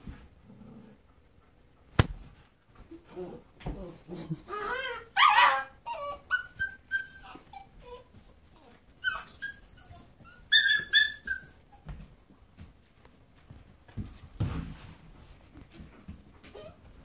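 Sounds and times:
puppy whimpering and squealing: 4.5s - 11.8s, 16.5s - 16.8s.

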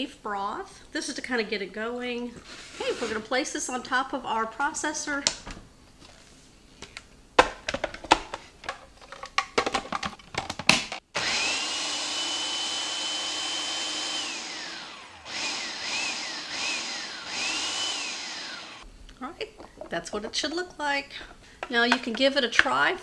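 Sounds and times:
food processor blending: 11.2s - 18.8s.

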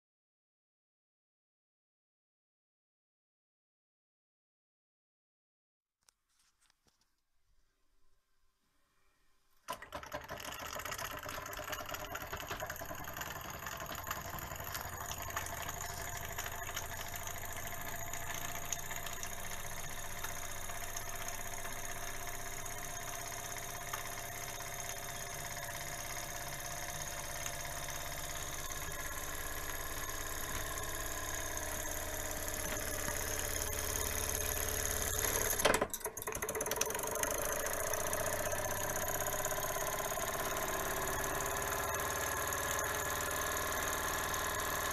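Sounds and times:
toy steam engine chuffing: 9.7s - 44.9s.

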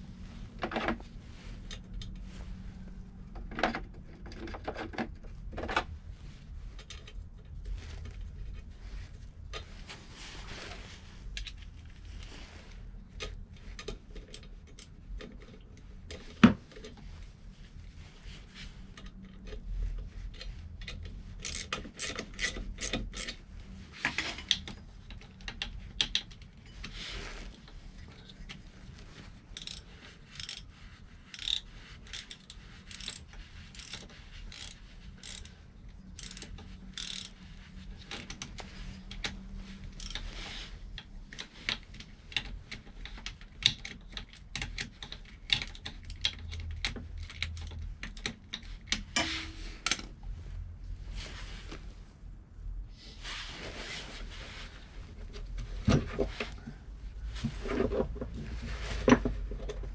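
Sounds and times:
metal tool clicks and scrapes: 29.6s - 30.7s, 31.3s - 40.8s.

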